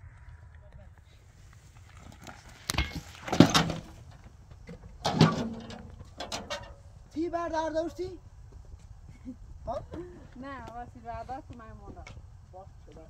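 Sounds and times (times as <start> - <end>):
wheelbarrow clanking and scraping: 2.0 - 6.9.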